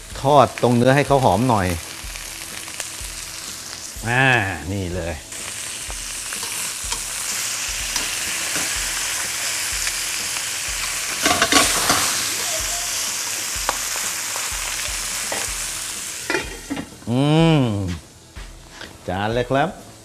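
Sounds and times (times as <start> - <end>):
lobster sizzling in hot oil: 0.0 - 19.1
metal tongs clicking on a pan: 6.3 - 7.1, 7.9 - 8.8, 11.1 - 12.1.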